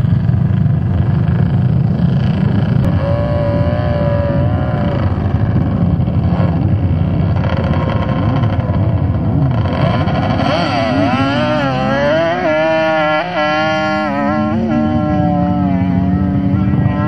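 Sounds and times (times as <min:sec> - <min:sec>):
quad engines revving and accelerating: 0:00.0 - 0:17.0.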